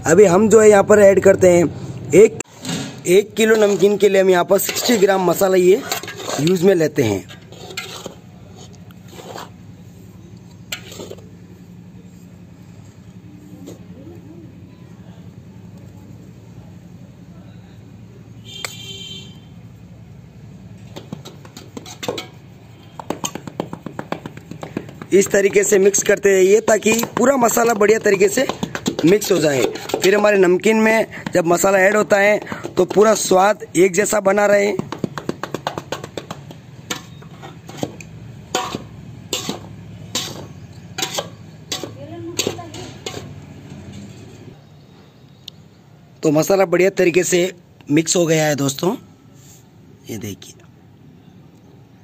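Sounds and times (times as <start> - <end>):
spoon scraping metal basin: 2.5 - 9.7, 10.6 - 11.4, 21.0 - 22.4, 26.8 - 33.3, 36.9 - 44.4.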